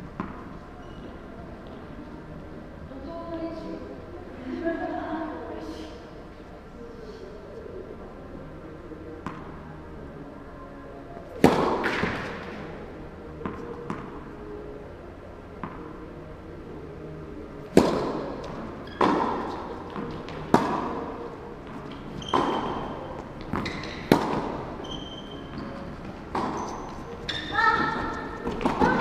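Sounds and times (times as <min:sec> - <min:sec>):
tennis ball bouncing: 0:00.2 - 0:00.5, 0:11.4 - 0:12.5, 0:13.4 - 0:14.1, 0:17.7 - 0:27.2, 0:27.8 - 0:29.0
tennis racket striking ball: 0:11.4 - 0:12.4, 0:17.7 - 0:21.0, 0:23.5 - 0:24.6, 0:27.8 - 0:29.0.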